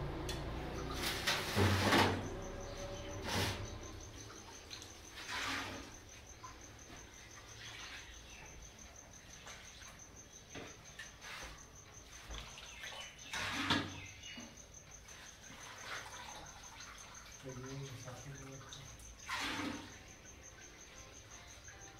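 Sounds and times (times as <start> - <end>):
ladle stirring broth in metal pot: 5.1 - 6.2, 19.2 - 20.0.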